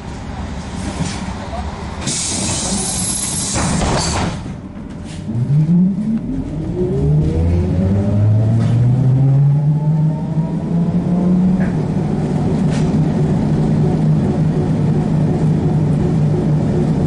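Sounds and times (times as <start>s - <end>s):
hiss: 2.0s - 3.8s.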